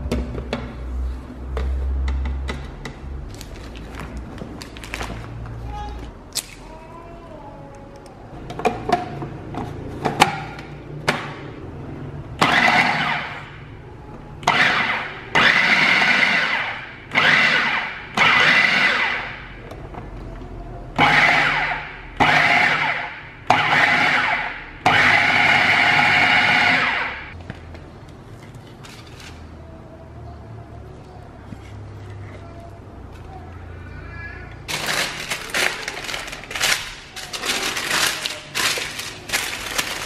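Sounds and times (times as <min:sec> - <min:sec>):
food processor pulsing: 0:12.4 - 0:13.4, 0:14.4 - 0:19.4, 0:23.5 - 0:27.3.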